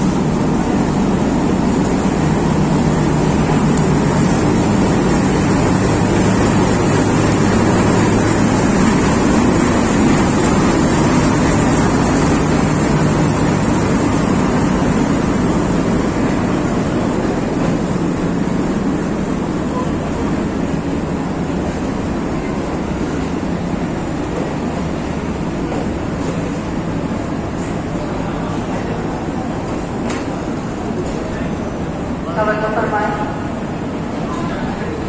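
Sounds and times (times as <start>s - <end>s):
low engine drone: 0.0s - 27.7s
train wheels rumbling on rails: 0.0s - 35.0s.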